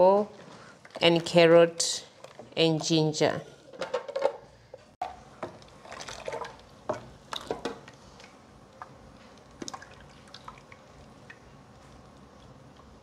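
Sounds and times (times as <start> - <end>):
juice dripping and trickling: 9.4 - 13.0.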